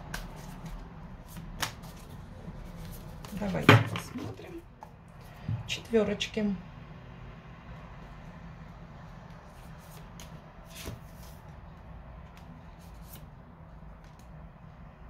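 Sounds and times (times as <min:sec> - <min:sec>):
cards shuffled and slid: 0:00.0 - 0:03.6, 0:09.3 - 0:11.6, 0:12.2 - 0:13.4
card flicks and snaps: 0:01.6 - 0:01.9.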